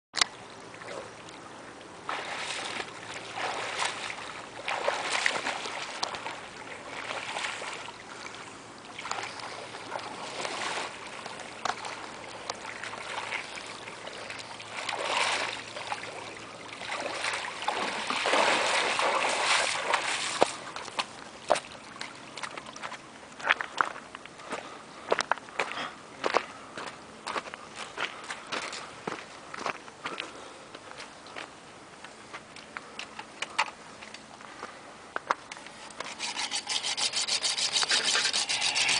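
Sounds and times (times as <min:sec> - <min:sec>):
water splashing from swimming: 0:02.0 - 0:23.0.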